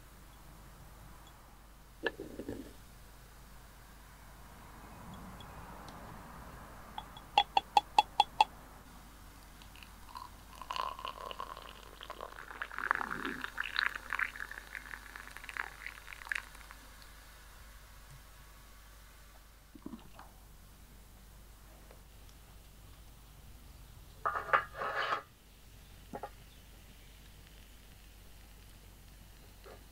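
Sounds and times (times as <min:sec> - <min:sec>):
ringing metal taps: 0:07.0 - 0:08.5.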